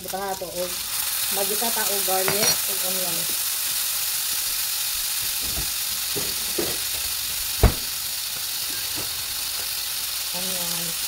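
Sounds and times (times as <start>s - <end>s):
food sizzling in a pan: 0.0s - 11.0s
light knocks: 7.6s - 8.0s.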